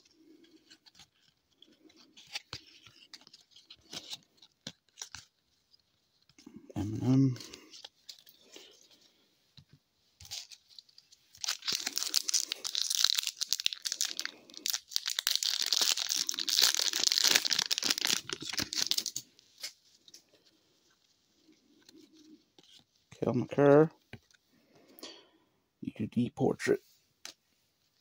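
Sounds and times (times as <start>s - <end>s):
card pack wrapper tearing: 11.3s - 19.8s.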